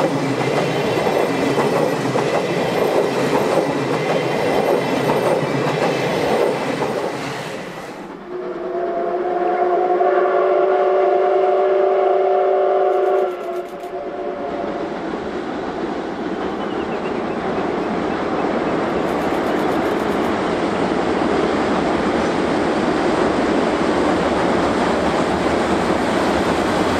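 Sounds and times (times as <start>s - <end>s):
train wheels clattering on rails: 0.0s - 7.8s, 18.9s - 20.5s
train running noise: 0.0s - 26.9s
steam locomotive whistle: 8.2s - 15.0s.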